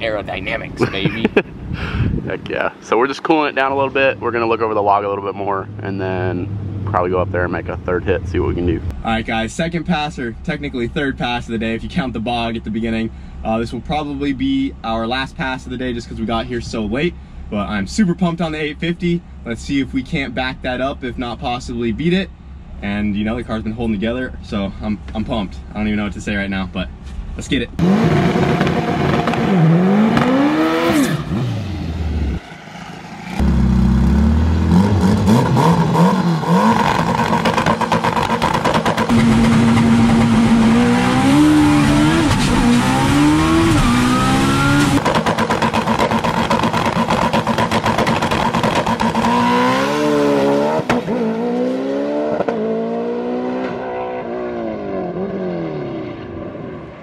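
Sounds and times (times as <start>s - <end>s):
drag car engine revving: 27.8s - 56.8s.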